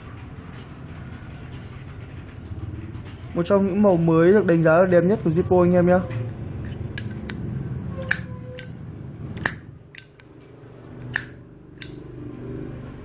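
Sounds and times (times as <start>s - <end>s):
lighter lid metallic clicks: 6.6s - 7.4s, 8.0s - 8.8s, 9.4s - 10.3s, 11.0s - 12.0s.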